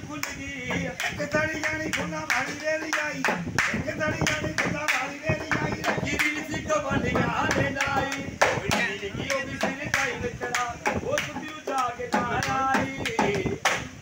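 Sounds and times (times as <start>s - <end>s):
man singing or calling: 0.0s - 14.0s
people clapping: 1.0s - 6.4s
hand drum struck by hand: 7.1s - 13.9s.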